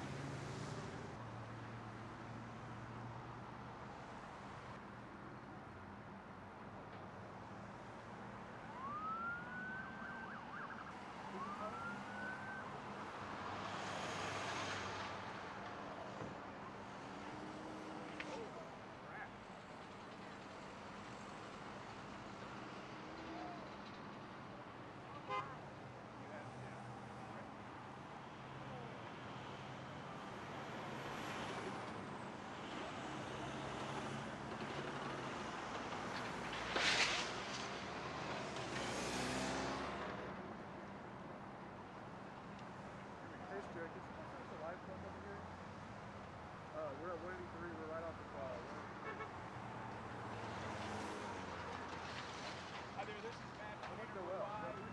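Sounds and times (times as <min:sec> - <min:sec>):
road traffic: 0:00.0 - 0:54.9
emergency siren: 0:08.6 - 0:13.1.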